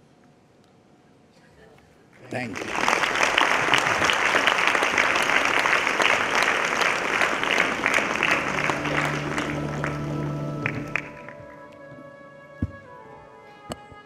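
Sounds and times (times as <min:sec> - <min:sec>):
audience applauding: 0:02.2 - 0:11.7.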